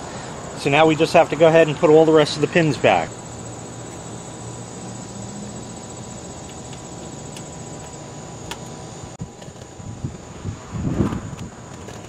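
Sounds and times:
thin high tone: 0.0s - 8.0s.

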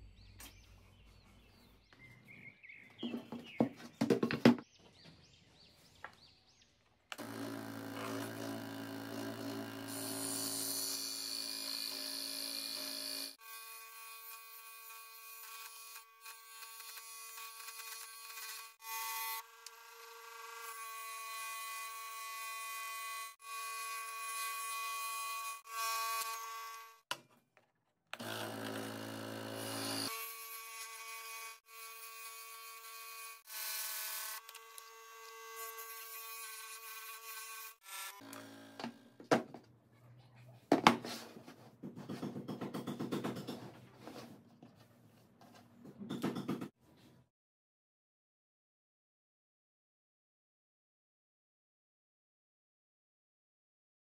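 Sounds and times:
electric saw cutting wood: 7.1s - 27.1s, 28.2s - 39.4s.

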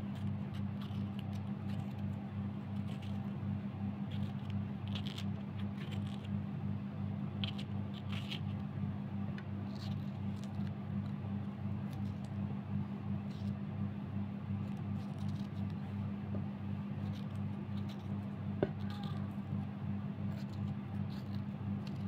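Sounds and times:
steady low hum: 0.0s - 22.0s
knife cutting pepper: 17.0s - 19.3s.

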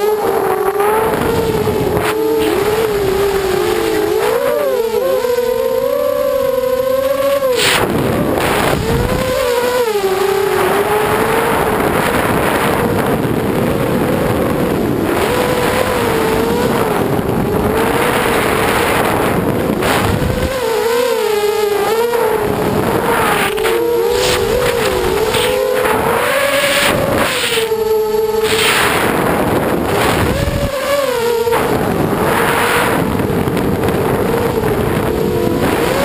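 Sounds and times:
drone motors whining: 0.0s - 36.0s
air rushing across microphone: 22.8s - 30.7s.

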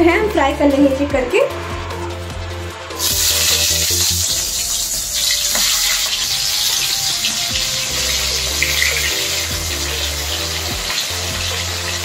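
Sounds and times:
prawns sizzling in oil: 2.9s - 12.0s.

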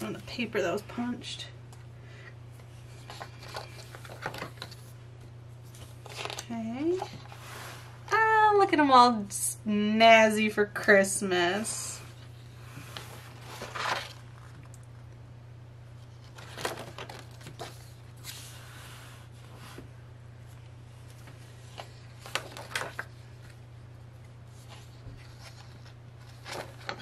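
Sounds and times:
steady low hum: 0.0s - 27.0s
paper pages rustling: 2.9s - 5.0s, 5.6s - 7.6s, 12.8s - 14.7s, 16.0s - 18.6s, 21.1s - 23.6s, 24.5s - 27.0s.

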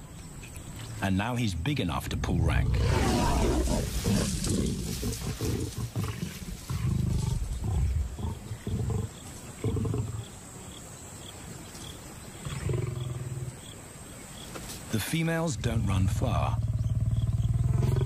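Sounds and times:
lions snarling and growling: 2.2s - 10.3s, 12.4s - 13.6s, 16.5s - 18.0s.

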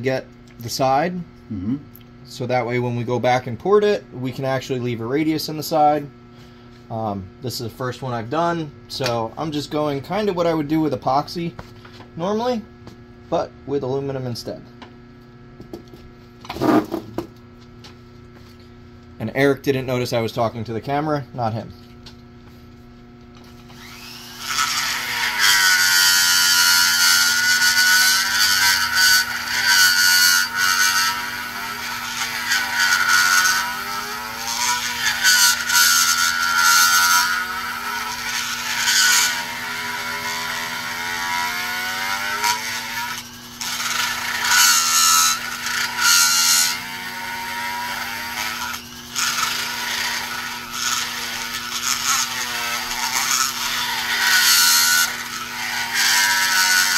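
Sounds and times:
steady low hum: 0.0s - 32.4s
die grinder whining: 23.4s - 56.9s.

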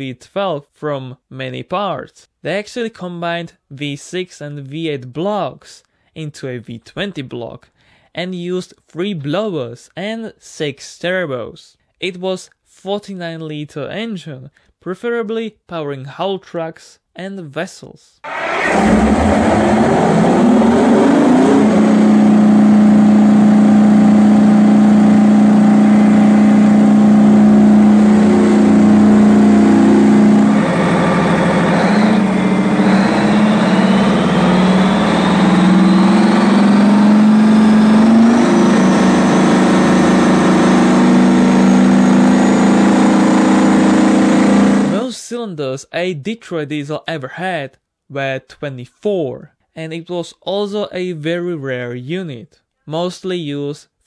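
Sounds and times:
diesel engine running hard: 18.3s - 45.0s
high whine climbing in pitch: 18.3s - 45.0s.

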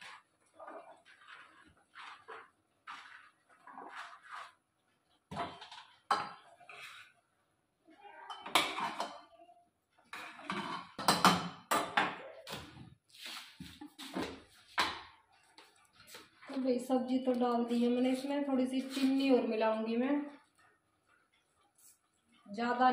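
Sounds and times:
ladle clanking and scraping pot: 0.0s - 4.6s, 5.3s - 7.1s, 8.2s - 9.3s, 10.1s - 11.9s.

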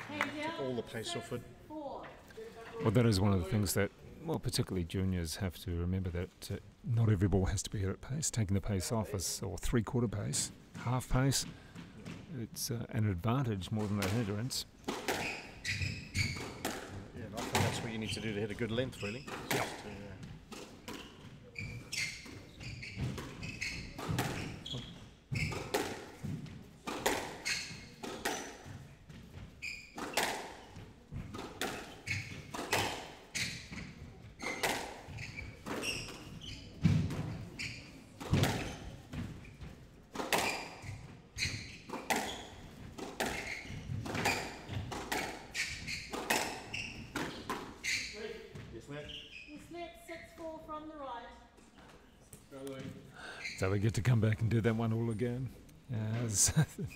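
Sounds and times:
ball hitting walls: 13.8s - 18.1s, 19.2s - 21.2s, 22.2s - 37.6s, 38.2s - 48.7s
racket hitting squash ball: 14.8s - 18.0s, 19.2s - 48.7s.

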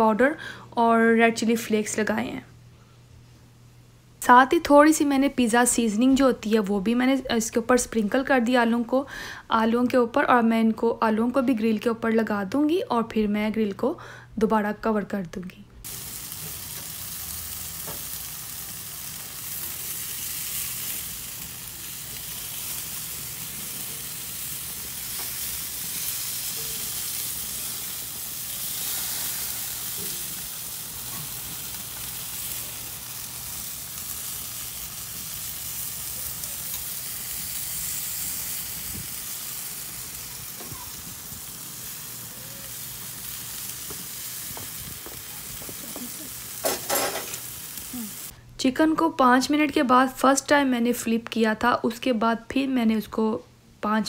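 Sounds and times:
chicken sizzling on a grill: 15.8s - 48.3s
metal tongs handling food: 46.6s - 47.5s.

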